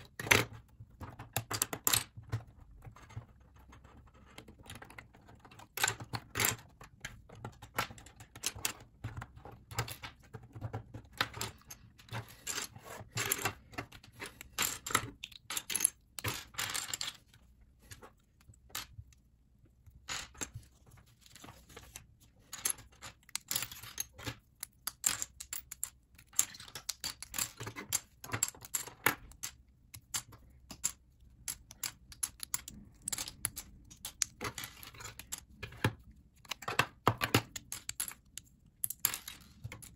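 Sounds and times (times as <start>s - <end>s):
plastic bricks clicking and clattering: 0.0s - 19.0s, 21.4s - 39.9s.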